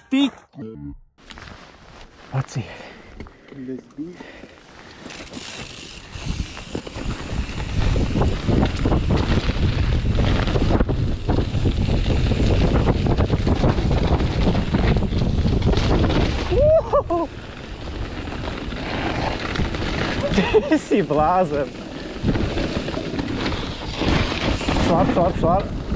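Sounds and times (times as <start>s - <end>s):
bike rattling on bumps: 5.0s - 25.9s
wind buffeting microphone: 6.0s - 16.9s
tyres rumbling on dirt: 17.3s - 25.9s.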